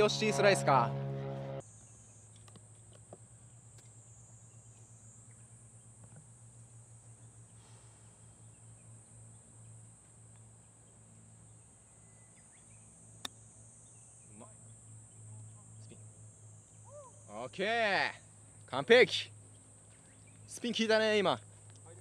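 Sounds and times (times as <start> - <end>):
low hum: 0.0 - 2.3
insects trilling: 1.6 - 22.0.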